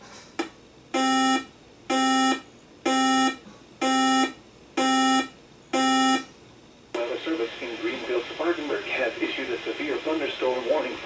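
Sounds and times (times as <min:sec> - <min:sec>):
buzzy electronic alarm beeps: 0:00.9 - 0:06.3.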